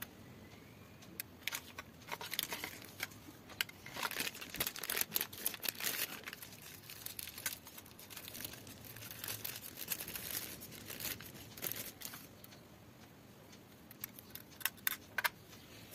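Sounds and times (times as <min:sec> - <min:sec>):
plastic bag crinkling: 0:01.5 - 0:12.3.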